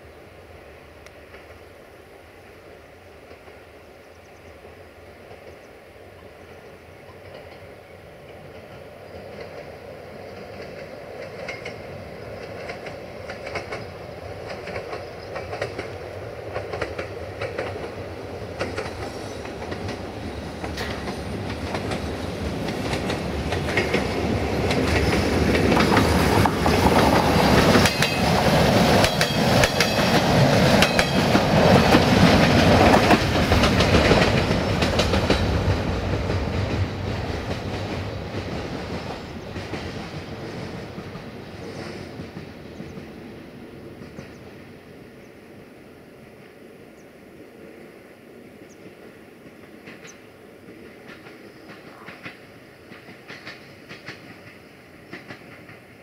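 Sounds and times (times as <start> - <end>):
diesel train passing: 0.0 - 56.0
wheels clacking over rail joints: 7.1 - 43.3, 48.8 - 56.0.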